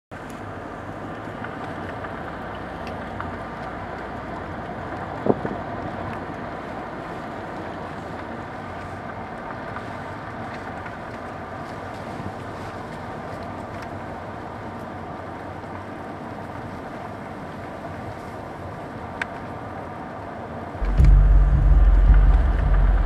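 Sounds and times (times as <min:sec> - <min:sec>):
sharp hit: 0:20.8 - 0:23.0
wind-like rushing noise: 0:20.8 - 0:23.0.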